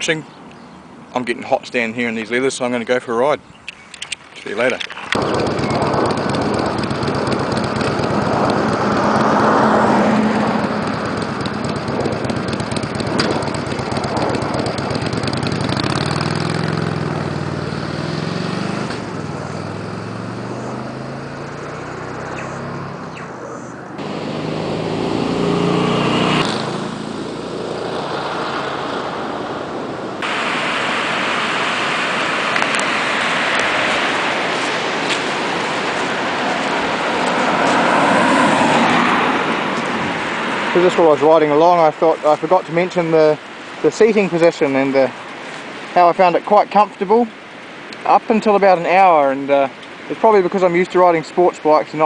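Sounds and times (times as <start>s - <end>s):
motorcycle engine passing by: 5.2s - 30.3s, 31.3s - 41.8s
river rapids rushing: 30.2s - 42.4s.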